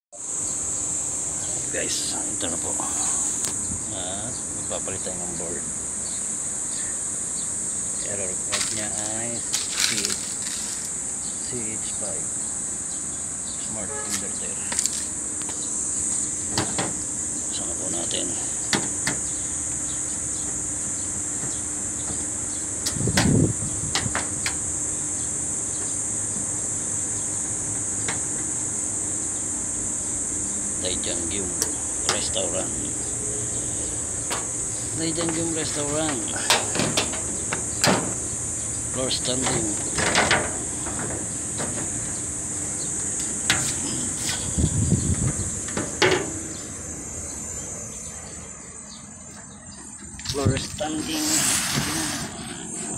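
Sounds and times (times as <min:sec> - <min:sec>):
high-pitched insect drone: 0:00.1 - 0:52.9
steady high hiss: 0:00.2 - 0:52.9
knocks on sheet-metal panels: 0:36.1 - 0:38.2, 0:39.4 - 0:42.0.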